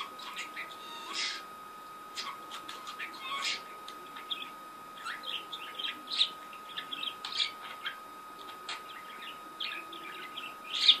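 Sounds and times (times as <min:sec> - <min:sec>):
budgerigar chirping: 0:00.0 - 0:01.5, 0:02.2 - 0:03.7
faint steady high tone: 0:00.0 - 0:11.0.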